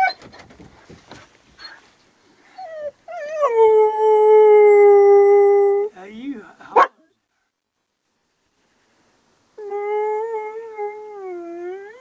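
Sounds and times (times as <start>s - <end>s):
dog whining: 0.0s - 0.4s, 2.5s - 5.9s.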